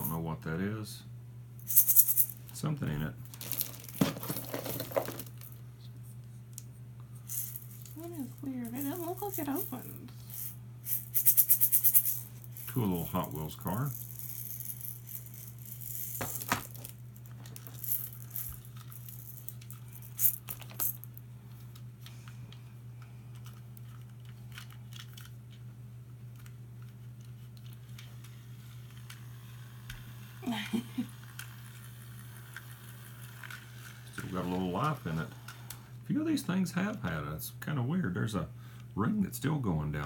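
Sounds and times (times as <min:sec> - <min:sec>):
steady low hum: 0:00.0 - 0:40.0
plastic toys clicking and rattling: 0:03.3 - 0:05.4, 0:07.3 - 0:21.0, 0:23.4 - 0:25.4.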